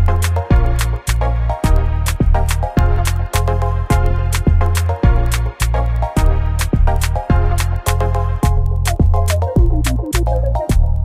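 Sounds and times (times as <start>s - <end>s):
background music with drum beat: 0.0s - 11.0s.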